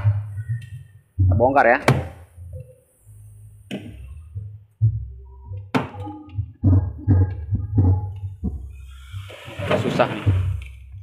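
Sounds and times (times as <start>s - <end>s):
knocks and creaks of plastic: 9.3s - 11.0s.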